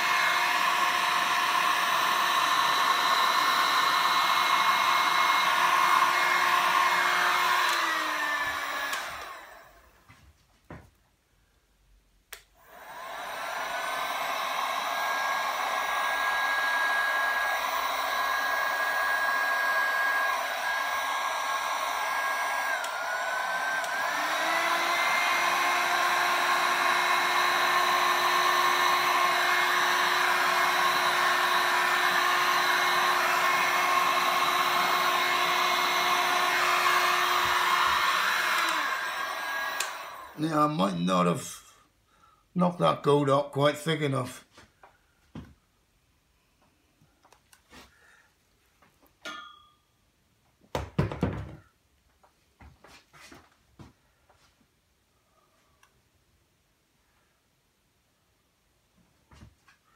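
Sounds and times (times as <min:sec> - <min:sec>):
heat gun blowing with motor whine: 0:00.0 - 0:10.0, 0:12.6 - 0:41.5.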